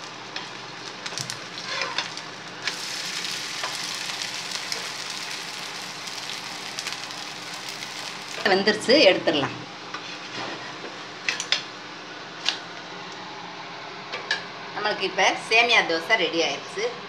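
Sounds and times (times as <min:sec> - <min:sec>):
dosa sizzling in oil: 0:00.0 - 0:08.5.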